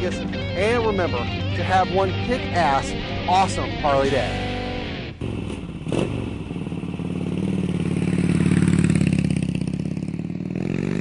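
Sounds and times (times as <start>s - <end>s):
motorcycle engine revving: 3.8s - 11.0s.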